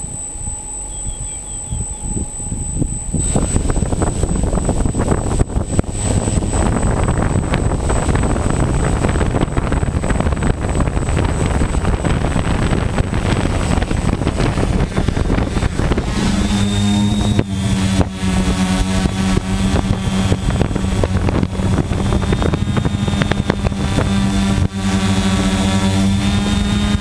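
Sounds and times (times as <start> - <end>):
prop wash rushing on microphone: 0.0 - 27.0
quadcopter propeller hum: 0.0 - 27.0.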